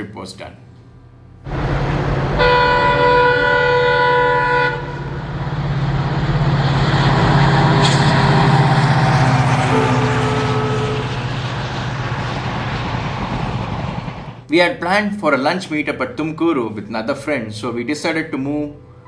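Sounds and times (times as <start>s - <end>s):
diesel locomotive engine throb: 1.4s - 14.5s
train horn blast: 1.5s - 11.7s
train rolling by: 1.5s - 14.5s.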